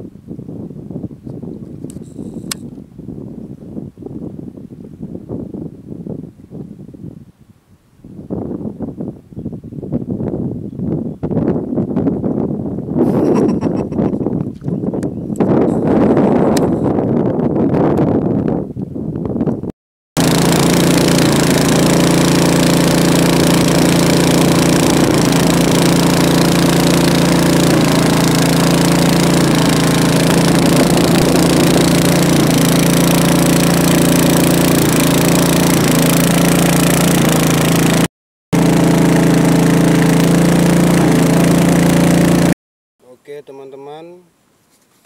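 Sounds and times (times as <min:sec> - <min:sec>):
boat engine running: 0:20.2 - 0:42.6.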